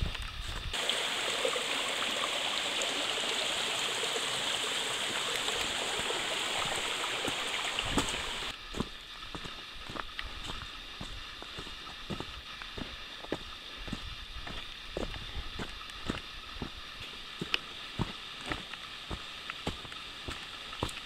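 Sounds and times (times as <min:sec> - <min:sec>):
footsteps on trail: 0:00.0 - 0:00.8, 0:05.6 - 0:21.0
stream running over rocks: 0:00.0 - 0:21.0.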